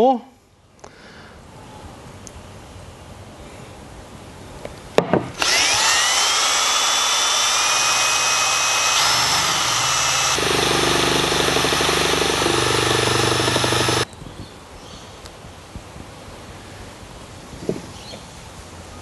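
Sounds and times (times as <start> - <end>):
cordless drill motor whine: 5.4 - 14.1.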